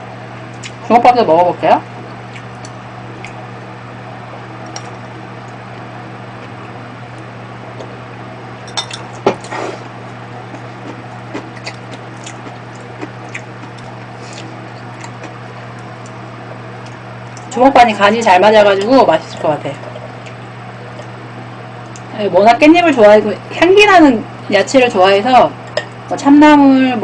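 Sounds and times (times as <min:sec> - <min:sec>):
steady low hum: 0:00.0 - 0:27.0
chewing: 0:02.2 - 0:03.4, 0:09.4 - 0:16.2, 0:19.8 - 0:21.2
utensils clinking on ceramic bowl: 0:08.7 - 0:09.1.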